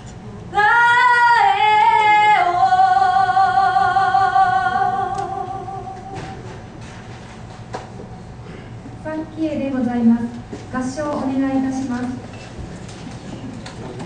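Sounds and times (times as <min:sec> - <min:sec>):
woman singing into a microphone: 0:00.5 - 0:06.4.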